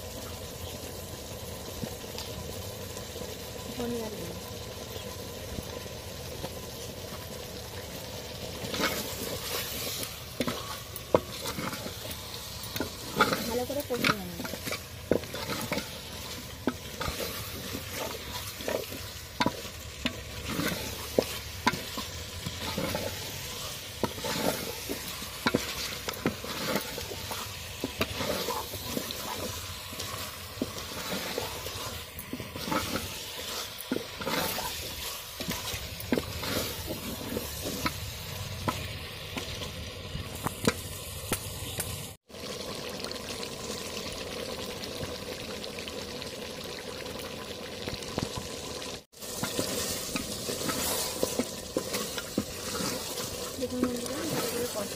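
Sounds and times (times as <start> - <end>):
meat sizzling in oil: 0.0 - 54.9
spatula scraping meat in pot: 8.4 - 38.9, 49.2 - 54.9.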